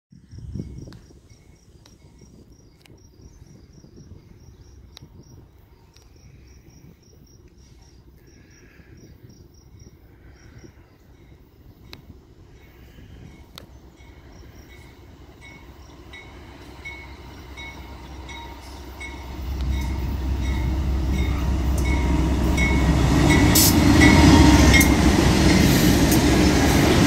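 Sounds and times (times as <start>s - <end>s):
wind rumble: 0.1s - 8.1s, 8.8s - 27.0s
insect chirping: 0.2s - 27.0s
distant traffic: 11.6s - 27.0s.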